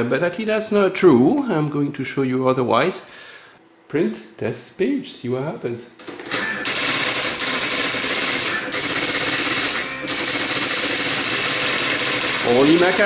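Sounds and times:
daisy wheel printer clattering: 0:06.0 - 0:13.0.

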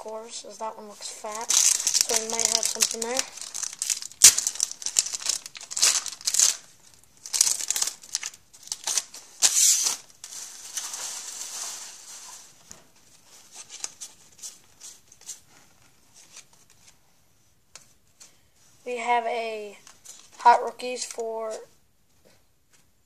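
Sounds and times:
foil wrappers crinkling and tearing: 0:01.2 - 0:12.6
soft rustling: 0:10.2 - 0:18.9.

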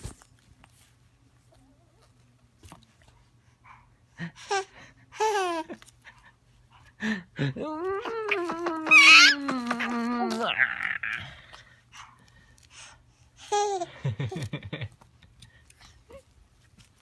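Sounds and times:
baby laughing and babbling: 0:04.4 - 0:05.8, 0:07.6 - 0:11.3, 0:13.4 - 0:13.9.

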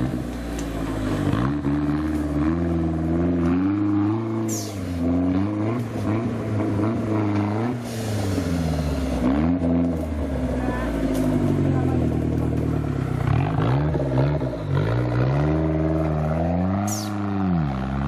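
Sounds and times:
engine revving: 0:00.0 - 0:18.0
high squeal: 0:16.7 - 0:17.4.

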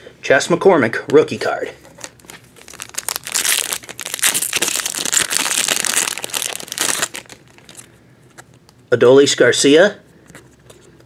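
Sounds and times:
foil wrapper tearing and crinkling: 0:01.9 - 0:07.9.

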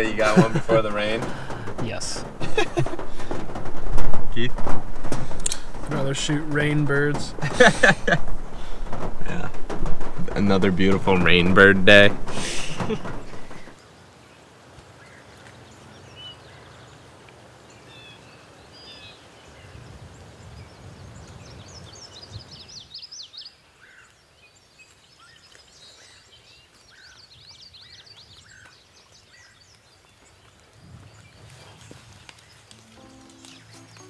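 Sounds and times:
low rustling noise: 0:00.0 - 0:13.9, 0:29.6 - 0:34.0
small birds chirping: 0:05.2 - 0:34.0.

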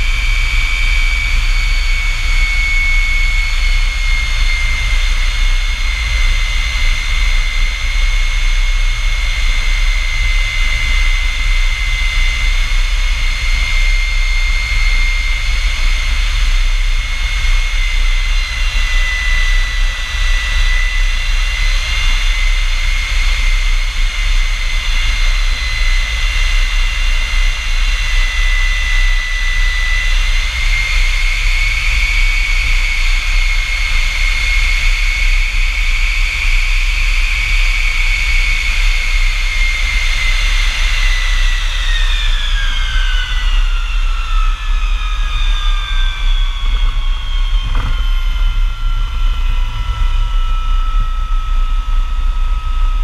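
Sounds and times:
jet engine high whine: 0:00.0 - 0:53.0
low rumble: 0:43.6 - 0:53.0.

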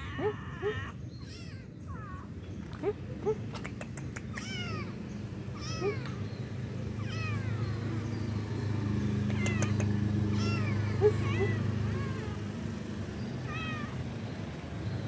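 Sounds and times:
kitten meowing: 0:00.0 - 0:02.3, 0:04.2 - 0:06.2, 0:07.0 - 0:07.8, 0:09.3 - 0:12.4, 0:13.4 - 0:14.0.

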